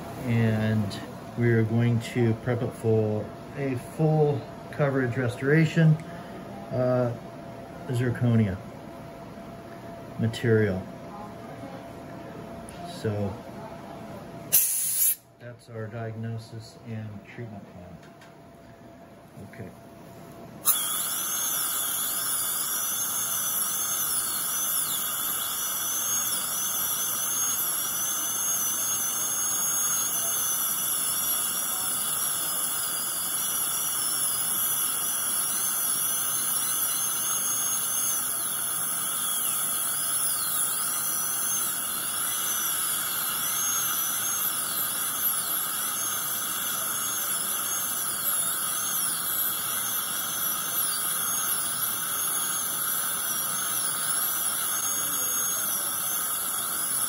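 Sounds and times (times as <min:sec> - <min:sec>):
dental drill whine: 0:14.5 - 0:15.3, 0:20.6 - 0:57.0.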